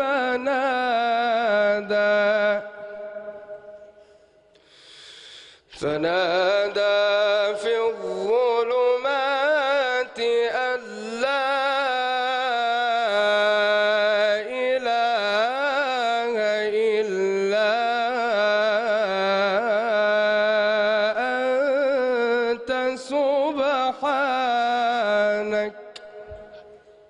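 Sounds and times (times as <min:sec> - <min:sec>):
man reciting in melodic chant: 0:00.0 - 0:04.0, 0:05.6 - 0:27.0.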